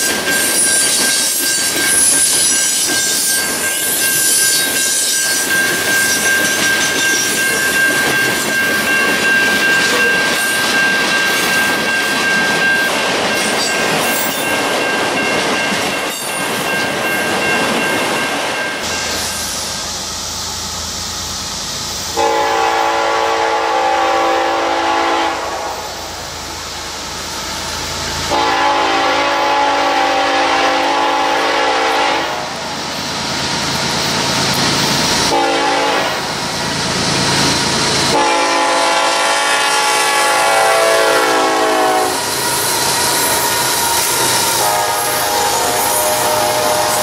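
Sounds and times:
locomotive engines rumbling: 0.0 - 47.0
train wheels rumbling: 0.0 - 47.0
train air horn blasts: 22.1 - 26.2, 28.3 - 32.6, 35.3 - 36.2, 38.1 - 42.3, 44.4 - 47.0.

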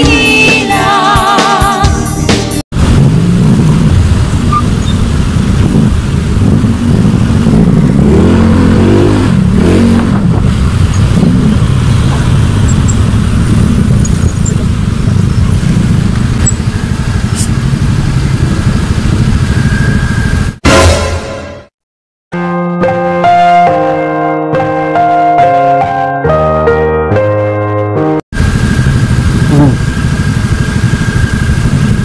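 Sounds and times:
motorcycle engine revving: 2.7 - 20.6, 28.4 - 32.0.

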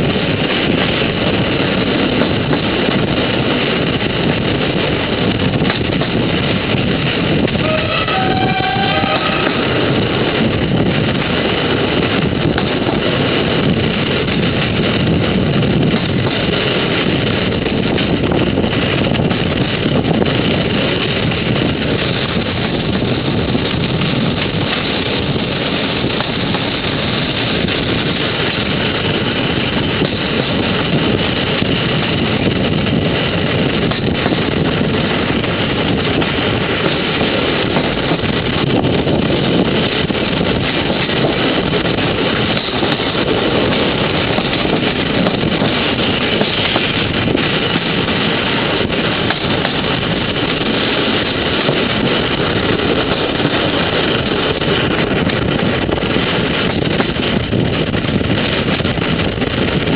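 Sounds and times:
moving train rumble: 0.0 - 59.9
wind on microphone: 0.0 - 59.9.

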